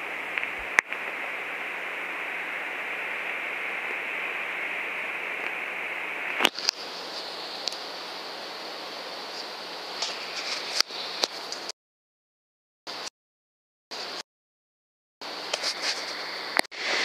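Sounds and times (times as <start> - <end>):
steady hiss: 0.0 - 11.7, 15.2 - 17.0.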